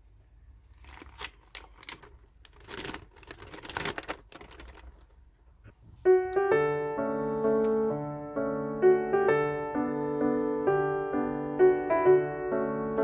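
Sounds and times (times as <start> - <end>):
piano music: 6.0 - 13.0.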